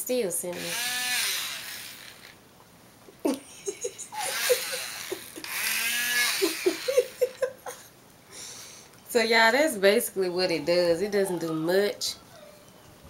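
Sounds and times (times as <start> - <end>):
electric comb buzzing through fur: 0.5 - 2.4, 4.1 - 7.5.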